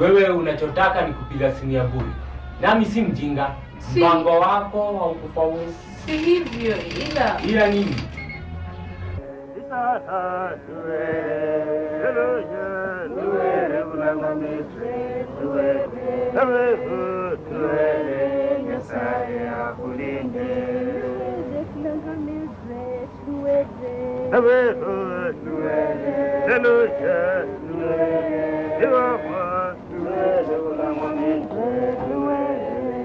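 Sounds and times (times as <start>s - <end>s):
voices chanting together: 9.2s - 33.0s.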